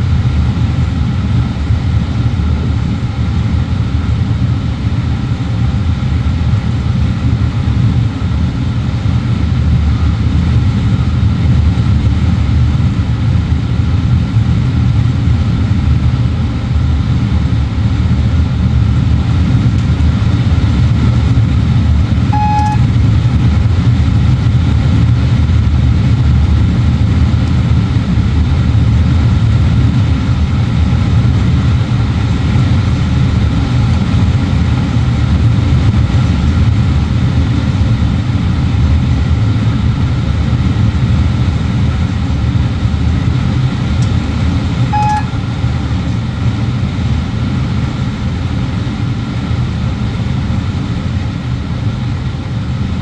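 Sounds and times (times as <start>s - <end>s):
train low rumble: 0.0s - 53.0s
short beep: 22.3s - 22.9s, 44.9s - 45.4s.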